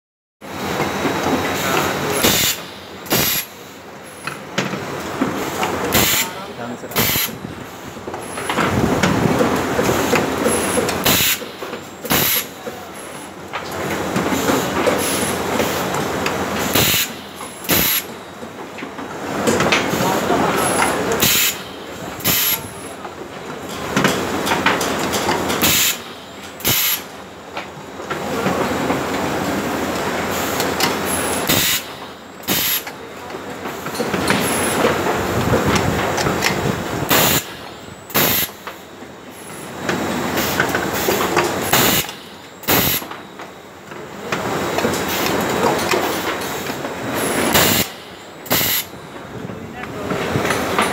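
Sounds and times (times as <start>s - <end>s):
machine running noise: 0.4s - 50.9s
pneumatic air blasts: 1.6s - 4.3s, 5.9s - 7.4s, 10.1s - 12.6s, 16.6s - 18.2s, 20.6s - 22.8s, 25.5s - 27.2s, 30.3s - 32.9s, 37.0s - 38.7s, 40.4s - 43.2s, 46.0s - 49.0s.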